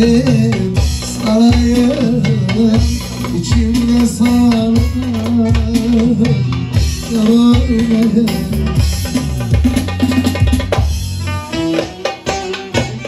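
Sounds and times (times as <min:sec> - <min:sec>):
man singing: 0:00.0 - 0:09.0
steady drum beat: 0:00.0 - 0:13.0.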